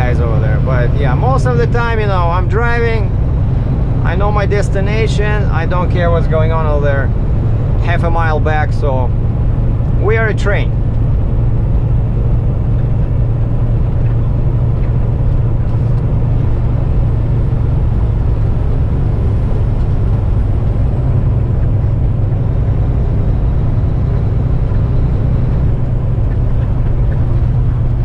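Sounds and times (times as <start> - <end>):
road noise: 0.0 - 28.0
truck diesel engine droning: 0.0 - 28.0.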